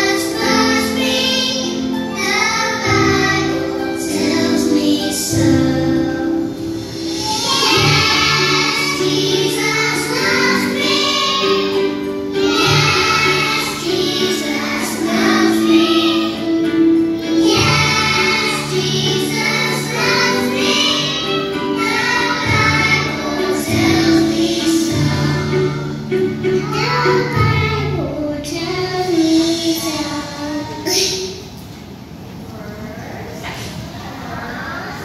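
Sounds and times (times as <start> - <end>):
children singing in unison: 0.0 - 30.8
instrumental backing music: 0.0 - 31.4.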